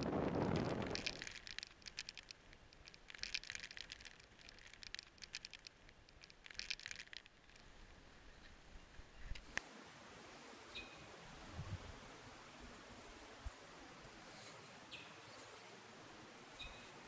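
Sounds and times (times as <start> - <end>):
wind buffeting microphone: 0.0 - 1.4, 11.4 - 12.0
faint crinkling and crackling: 0.0 - 10.7, 12.9 - 17.0.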